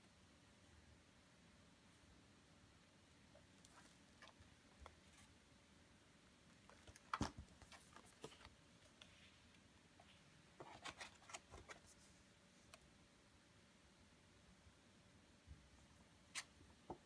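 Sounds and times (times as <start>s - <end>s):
pop-up book pages rustling: 10.6s - 12.0s.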